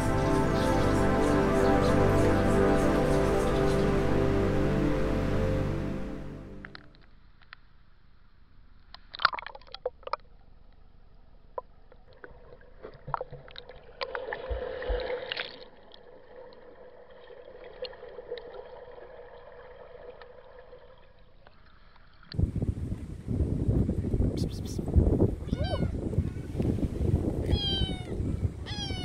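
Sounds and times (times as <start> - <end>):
water splashing: 12.0 - 22.3.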